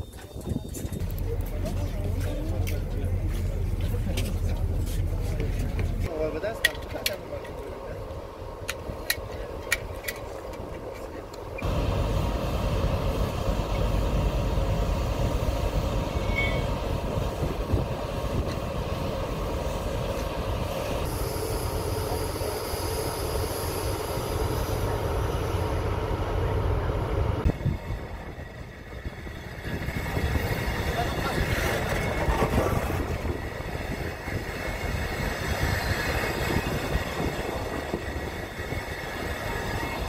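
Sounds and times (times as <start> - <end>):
freight wagons rolling on rails: 0.0 - 12.2, 27.6 - 40.0
locomotive rumble: 0.0 - 40.0
high-pitched whine: 11.6 - 16.9.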